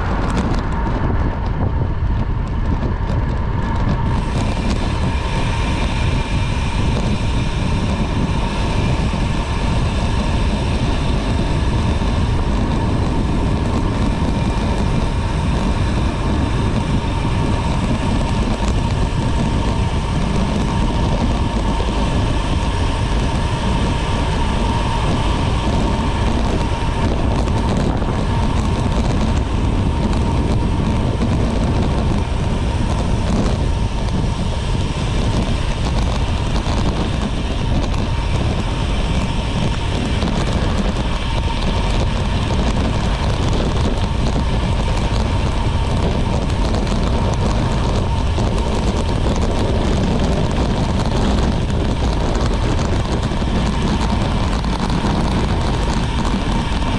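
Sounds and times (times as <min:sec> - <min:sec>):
bicycle tyre noise: 0:00.0 - 0:56.9
thin steady whine: 0:00.0 - 0:56.9
wind on microphone: 0:00.0 - 0:56.9.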